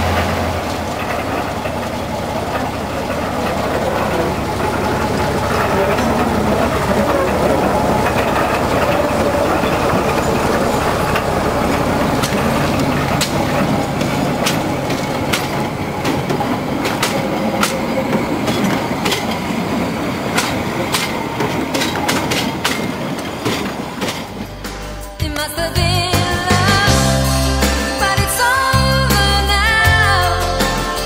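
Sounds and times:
diesel locomotive engine running: 0.0s - 31.0s
train wheels clicking over rail joints: 0.0s - 31.0s.

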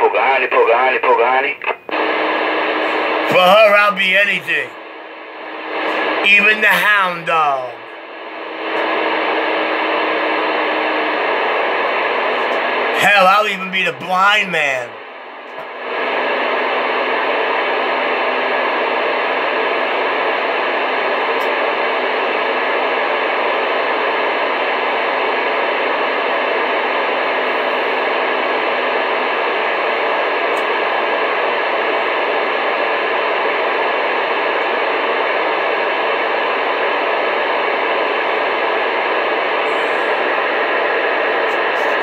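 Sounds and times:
radio static hiss: 0.0s - 15.1s, 30.7s - 42.0s.

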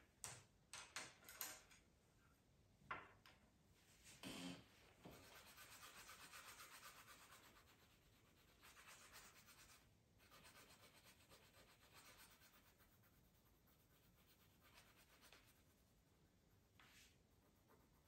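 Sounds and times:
pencil scratching on paper: 5.0s - 18.0s.

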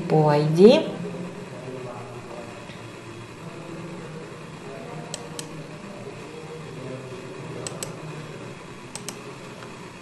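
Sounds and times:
low background hum: 0.0s - 10.0s
computer mouse clicking: 5.1s - 5.6s, 7.6s - 8.0s, 8.9s - 9.3s.

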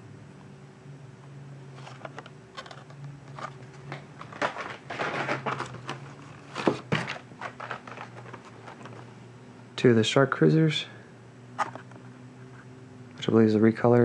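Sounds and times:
plastic packs rustling and clicking: 1.8s - 9.1s.

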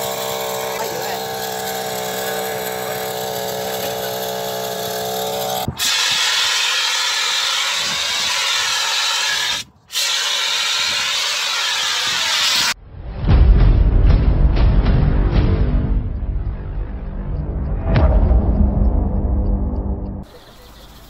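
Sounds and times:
two-stroke engine running: 0.0s - 5.8s.

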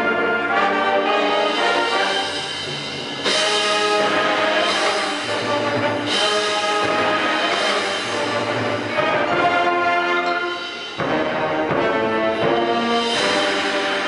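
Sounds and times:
brass chords: 0.0s - 14.0s
percussion with timpani: 0.0s - 14.0s.

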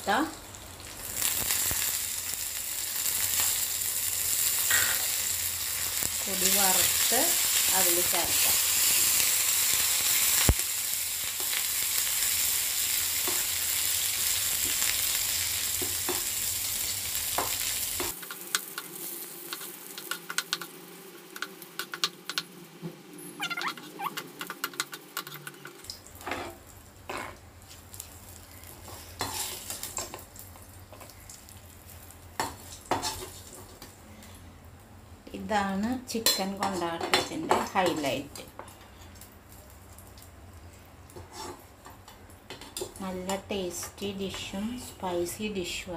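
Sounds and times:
chillies sizzling in hot oil: 0.0s - 22.5s, 25.5s - 34.0s
spatula scraping and tapping pan: 41.2s - 42.9s.

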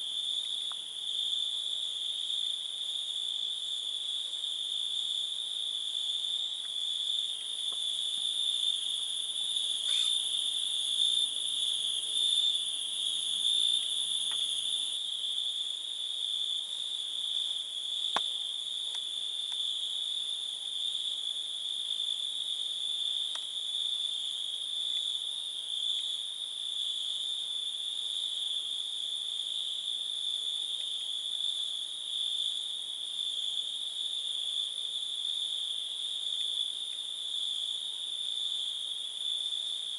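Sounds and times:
crickets trilling: 0.0s - 39.9s
high thin insect sound: 9.7s - 10.5s.

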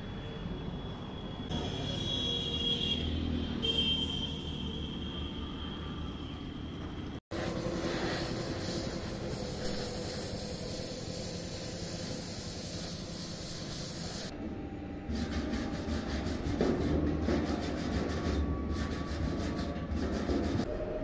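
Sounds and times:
welding torch flame hissing: 7.4s - 14.3s.

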